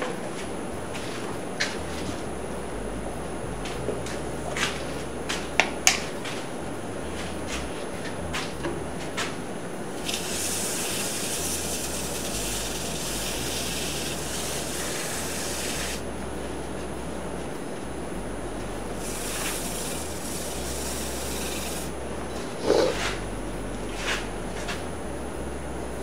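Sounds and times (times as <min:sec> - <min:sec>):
cloth rubbing wooden bowl hiss: 0:10.0 - 0:16.0, 0:19.0 - 0:22.0.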